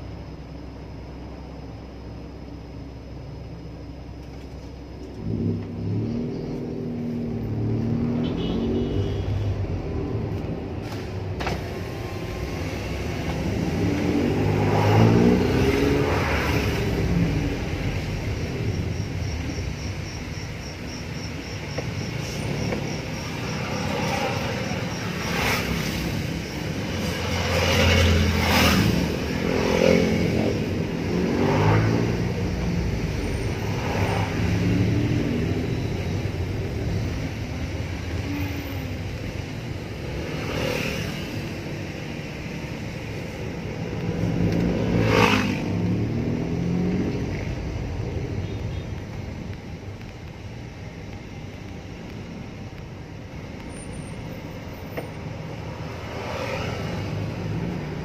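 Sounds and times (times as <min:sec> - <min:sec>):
road noise: 0:00.0 - 0:58.0
car engine revving: 0:11.0 - 0:21.5, 0:22.2 - 0:35.8.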